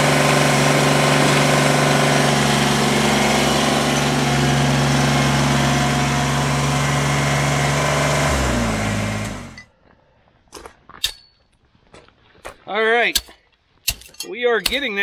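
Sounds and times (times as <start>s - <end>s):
machine engine running: 0.0s - 9.6s.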